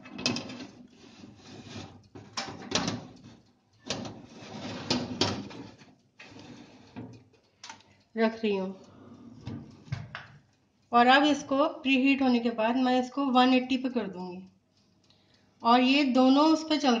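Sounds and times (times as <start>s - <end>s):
metal baking tray scraping: 0.0s - 7.2s.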